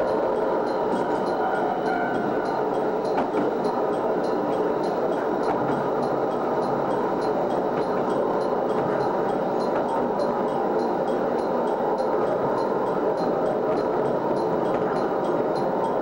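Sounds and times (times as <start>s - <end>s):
diesel train running: 0.0s - 16.0s.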